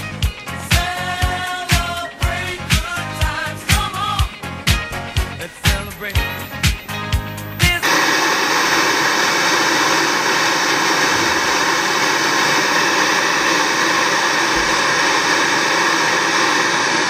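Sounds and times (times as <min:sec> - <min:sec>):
television static hiss: 0:07.6 - 0:17.0.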